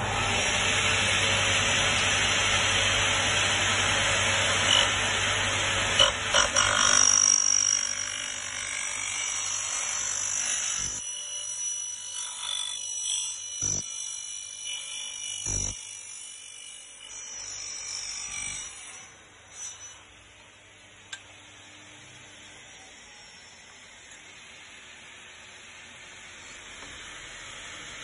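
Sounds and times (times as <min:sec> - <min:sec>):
miter saw cutting: 0:00.0 - 0:20.1
saw motor hum: 0:00.0 - 0:20.4.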